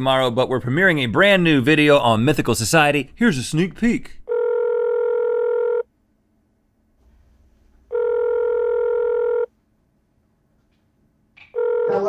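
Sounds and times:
telephone ringback tone: 0:04.3 - 0:05.8, 0:07.9 - 0:09.5, 0:11.6 - 0:12.0.

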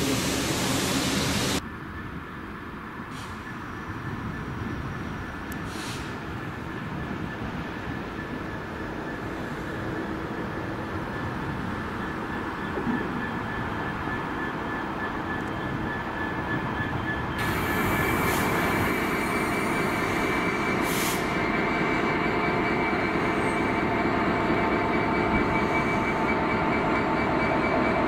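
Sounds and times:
diesel locomotive engine: 0:00.0 - 0:28.0
rail noise: 0:00.0 - 0:28.0.

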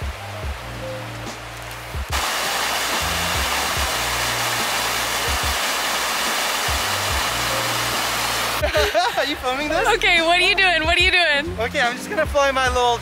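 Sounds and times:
waterfall rushing over rocks: 0:01.2 - 0:10.0.

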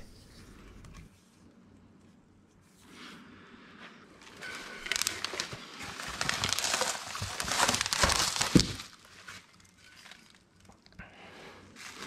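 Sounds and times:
bubble wrap crinkling: 0:04.2 - 0:11.0, 0:11.7 - 0:12.0
knocks in cardboard box: 0:07.9 - 0:08.9.

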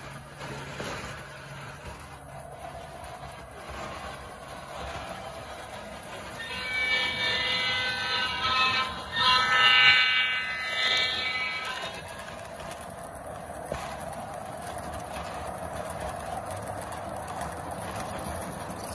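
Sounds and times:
model train wheels clattering: 0:00.0 - 0:18.9
model locomotive horn: 0:03.3 - 0:12.8.

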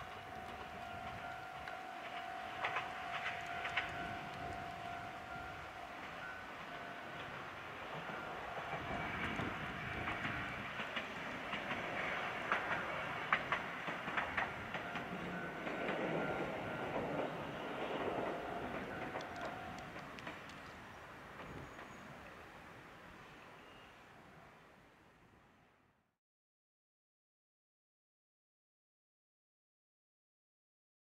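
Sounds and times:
tram wheels clicking over rail joints: 0:00.0 - 0:22.5.

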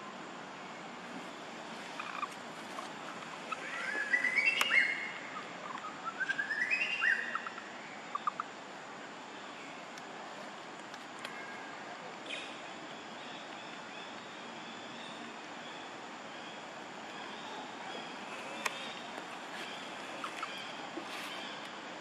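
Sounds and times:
background hiss: 0:00.0 - 0:22.0
bird singing: 0:00.6 - 0:08.5, 0:11.3 - 0:22.0
faint clicks: 0:10.7 - 0:11.4, 0:18.4 - 0:19.5.

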